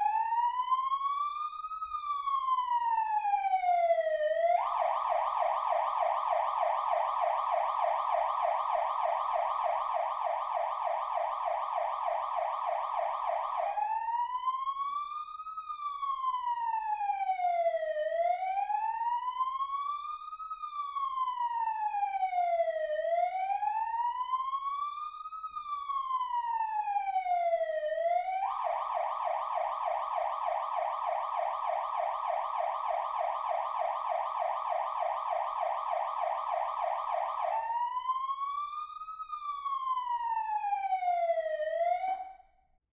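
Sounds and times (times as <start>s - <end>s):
emergency siren yelping and wailing: 0.0s - 42.6s.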